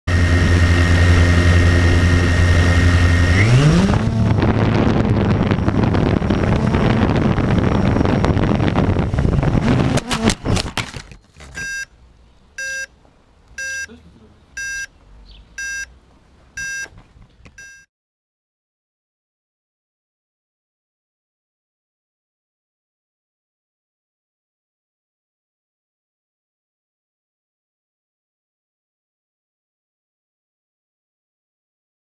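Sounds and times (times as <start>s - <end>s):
quadcopter propellers whining: 0.1s - 11.8s
short electronic beeps: 11.6s - 11.9s, 12.6s - 12.9s, 13.6s - 14.0s, 14.6s - 14.9s, 15.6s - 15.9s, 16.6s - 16.9s, 17.6s - 17.9s.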